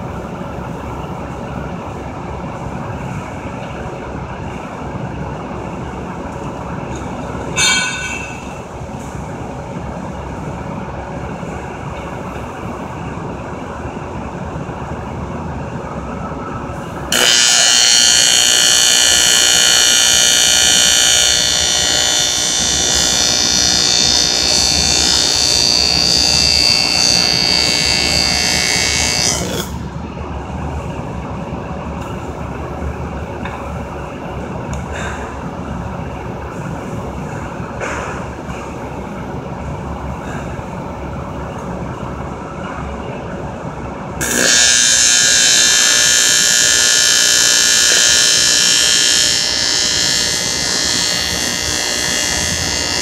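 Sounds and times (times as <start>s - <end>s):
steady background noise: 0.0s - 53.0s
welding arc buzzing: 17.1s - 29.9s, 44.2s - 53.0s.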